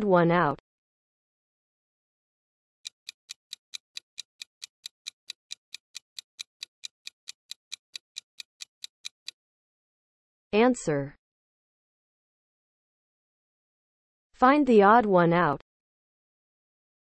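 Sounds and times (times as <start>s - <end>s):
clock-like ticks: 2.8s - 9.4s.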